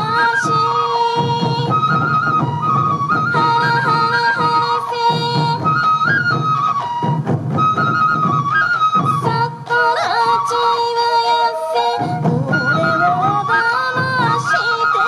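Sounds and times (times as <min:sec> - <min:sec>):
taiko drums beating: 0:00.0 - 0:10.9, 0:11.6 - 0:15.0
bamboo flutes playing melody: 0:00.0 - 0:15.0.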